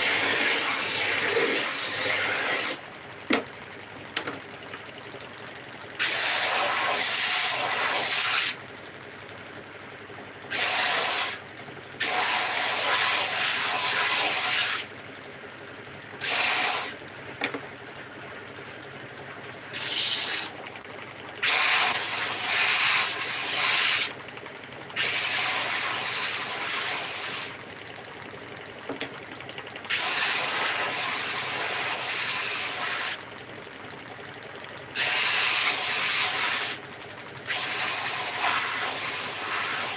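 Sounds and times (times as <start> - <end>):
belt sander running: 0.0 - 8.6, 19.6 - 33.9.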